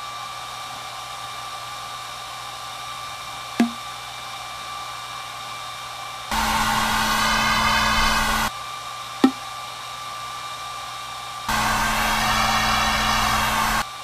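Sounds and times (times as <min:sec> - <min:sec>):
hair dryer running: 0:00.0 - 0:14.0
hollow pop of paper tube: 0:03.6 - 0:03.8, 0:09.2 - 0:09.4.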